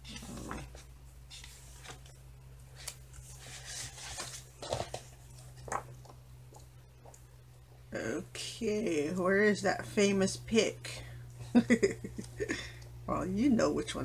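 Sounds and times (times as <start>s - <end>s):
book pages flipping: 0.0s - 7.2s
faint low hum: 0.0s - 14.0s.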